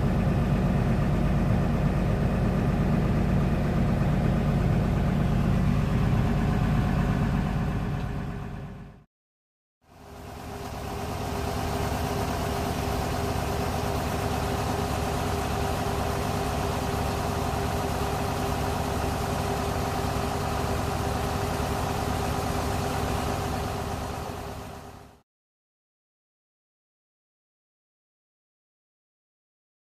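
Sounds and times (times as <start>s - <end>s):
diesel engine idling: 0.0s - 9.0s, 9.9s - 25.2s.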